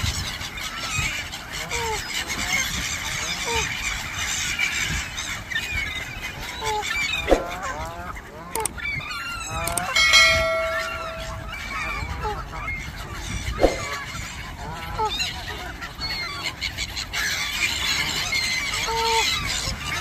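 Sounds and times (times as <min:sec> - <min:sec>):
gulls calling: 0:05.4 - 0:20.0
click: 0:08.6 - 0:08.8, 0:09.6 - 0:11.4
bell-like chime: 0:09.7 - 0:11.9.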